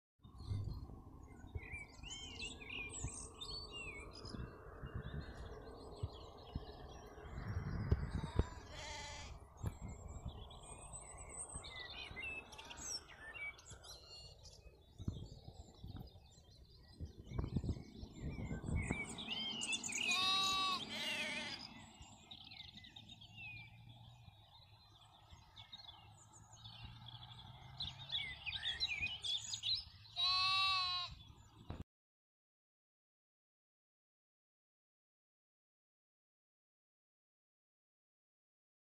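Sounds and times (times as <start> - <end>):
small birds chirping: 0.4 - 31.8
sheep bleating: 8.4 - 9.4, 20.0 - 21.7, 30.2 - 31.2.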